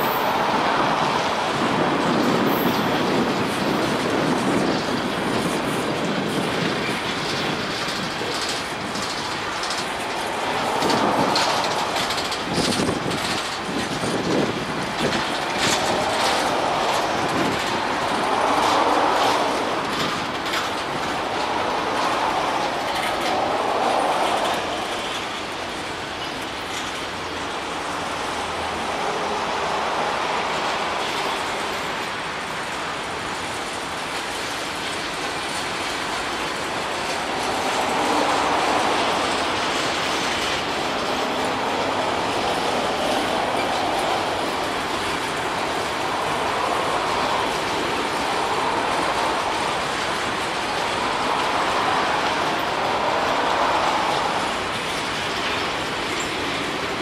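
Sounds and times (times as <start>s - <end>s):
train wheels rumbling on rail: 0.0s - 57.0s
wheel clicks over rail: 2.1s - 25.4s.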